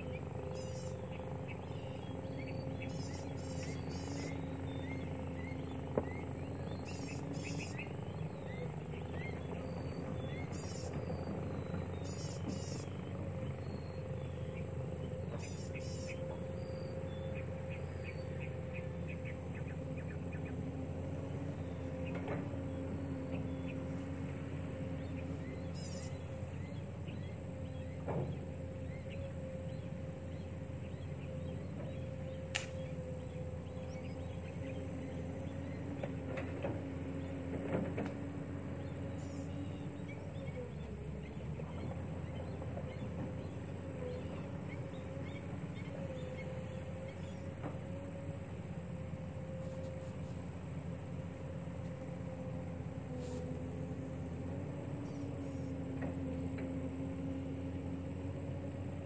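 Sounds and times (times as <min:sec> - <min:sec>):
motor droning: 0:00.0 - 0:59.0.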